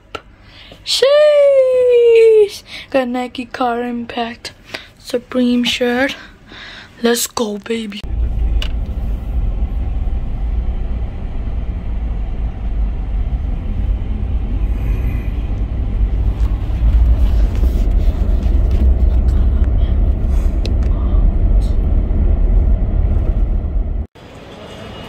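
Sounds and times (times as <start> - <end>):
car cabin road and engine rumble: 7.8 - 24.1.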